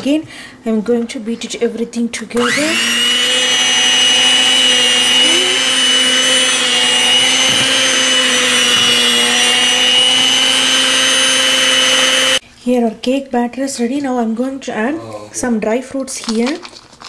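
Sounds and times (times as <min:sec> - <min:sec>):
electric hand mixer running: 0:02.4 - 0:12.4.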